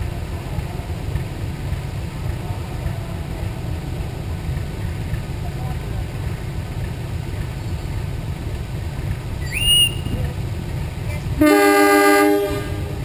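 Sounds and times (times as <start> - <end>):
locomotive engine idling: 0.0 - 13.0
short rising high whistle: 9.4 - 10.2
diesel locomotive horn chord: 11.4 - 13.0.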